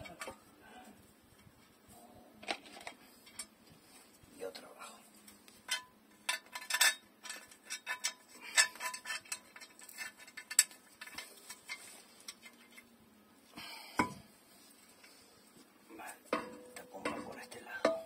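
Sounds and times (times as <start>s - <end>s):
metal cover clinking and knocking: 16.3s - 18.0s.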